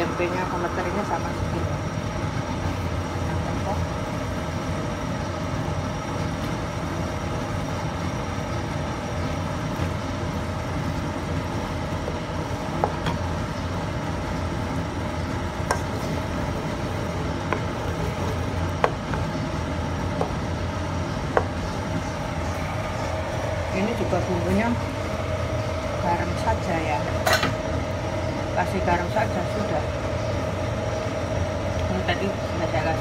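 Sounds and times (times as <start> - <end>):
steady mechanical hum: 0.0 - 33.0
sauce simmering in a wok: 0.5 - 23.7.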